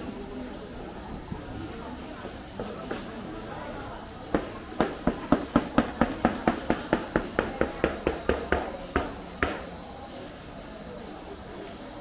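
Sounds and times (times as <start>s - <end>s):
sharp knocks: 4.3s - 9.7s.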